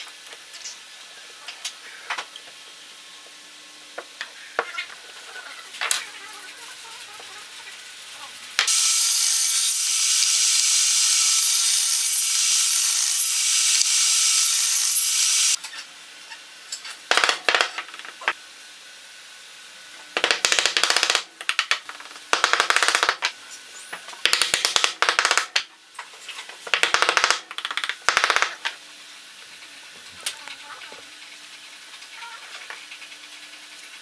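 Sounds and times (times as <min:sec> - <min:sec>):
table saw cutting wood: 0:08.7 - 0:15.6.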